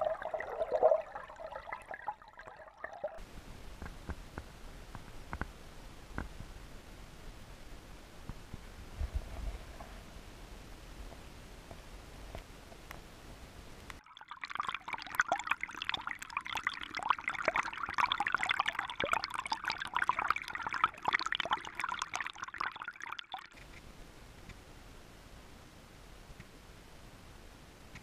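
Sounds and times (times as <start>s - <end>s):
river water gurgling and splashing: 0.0s - 3.2s, 14.0s - 23.6s
faint steady hiss: 0.0s - 28.0s.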